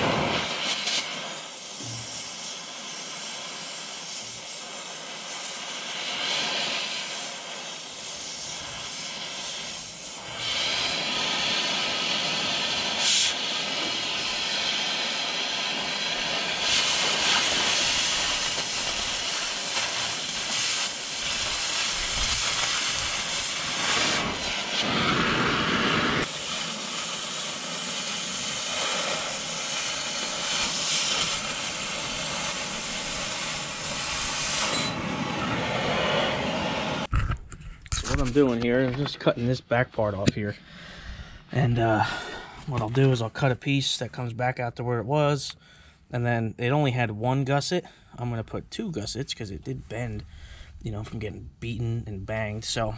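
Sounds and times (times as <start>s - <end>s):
cutting torch hissing: 0.0s - 37.2s, 37.9s - 43.9s
sharp crack: 16.6s - 25.5s.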